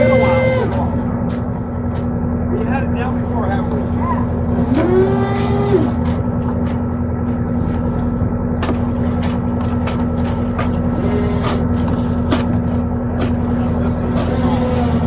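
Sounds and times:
brief higher tone: 0:00.0 - 0:01.0
boat engine droning: 0:00.0 - 0:15.0.

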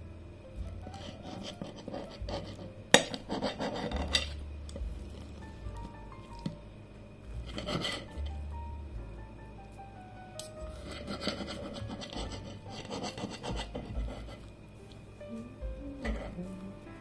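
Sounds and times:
knife sawing through tortilla: 0:00.9 - 0:04.3, 0:07.5 - 0:08.1, 0:10.8 - 0:14.4.

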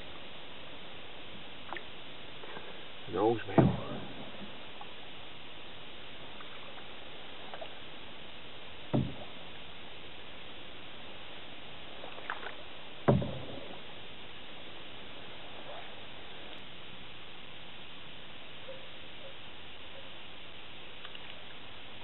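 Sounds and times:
canoe paddling on calm water: 0:00.0 - 0:22.0
paddle knocking against canoe: 0:03.4 - 0:04.9, 0:08.8 - 0:09.5, 0:12.2 - 0:13.8.

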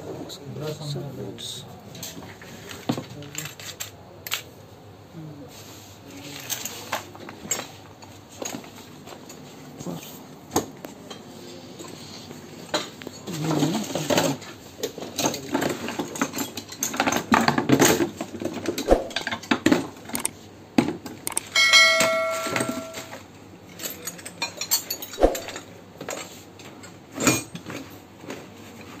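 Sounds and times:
metal tools clattering: 0:12.7 - 0:19.6, 0:21.3 - 0:27.8
clear ringing tone: 0:21.3 - 0:23.2.

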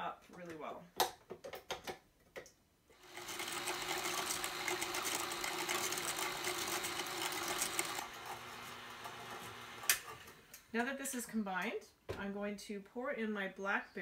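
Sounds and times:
paddle churning cream: 0:03.0 - 0:10.4
stand mixer motor hum: 0:03.0 - 0:10.4.

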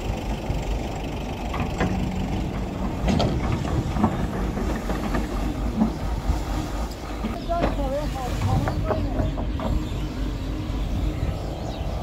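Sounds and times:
excavator running: 0:00.0 - 0:12.0
bucket clanks and knocks: 0:01.6 - 0:06.0.

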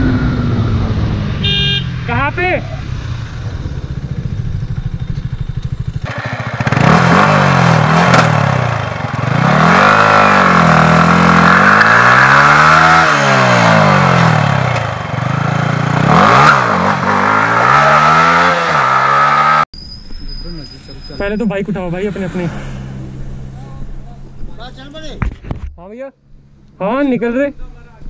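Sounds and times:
motorcycle engine idling and revving: 0:00.0 - 0:19.7.

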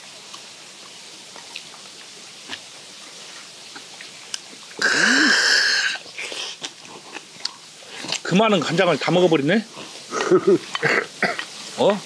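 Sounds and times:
chewing: 0:00.3 - 0:04.9, 0:05.8 - 0:08.3, 0:09.7 - 0:12.0
man exhaling loud breathy kha: 0:04.8 - 0:06.6.

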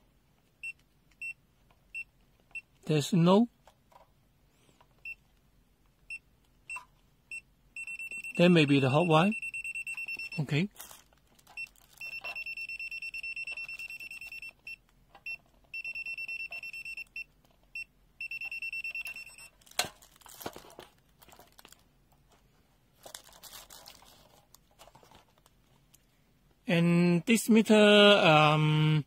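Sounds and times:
handling rustles: 0:19.4 - 0:26.2.

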